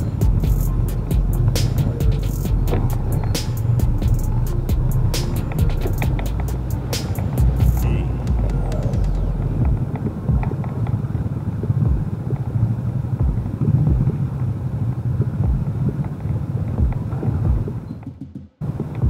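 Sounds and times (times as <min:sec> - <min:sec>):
bumps: 0:00.0 - 0:11.0, 0:11.8 - 0:12.4, 0:13.2 - 0:14.4, 0:15.4 - 0:16.0, 0:16.7 - 0:19.0
vehicle rumbling along a road: 0:00.0 - 0:18.0
wind buffeting the microphone: 0:00.0 - 0:19.0.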